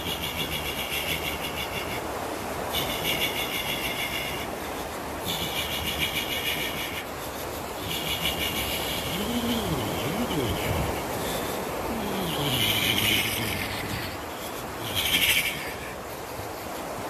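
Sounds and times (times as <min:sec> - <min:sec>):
rushing background noise: 0:00.0 - 0:17.0
man making vocal buzz: 0:09.0 - 0:11.2, 0:11.8 - 0:14.2.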